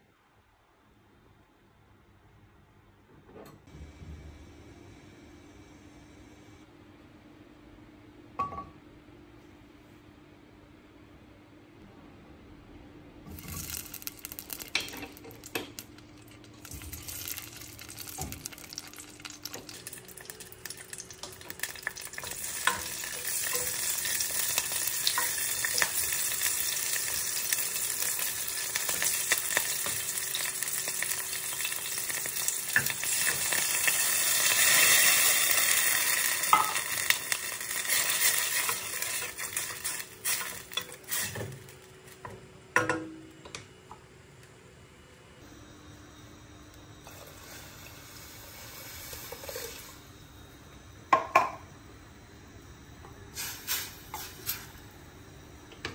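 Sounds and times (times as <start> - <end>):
food sizzling in a hot pan: 13.3 - 41.9, 47.0 - 50.4, 53.3 - 54.8.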